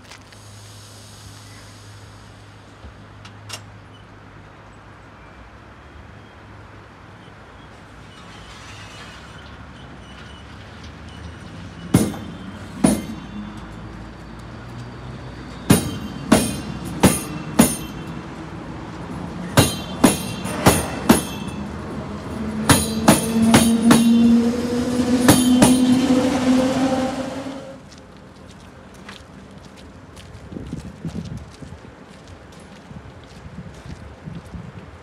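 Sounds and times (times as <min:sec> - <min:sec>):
train wheels clacking over rail joints: 0:10.3 - 0:13.8, 0:15.6 - 0:18.3, 0:19.4 - 0:26.6.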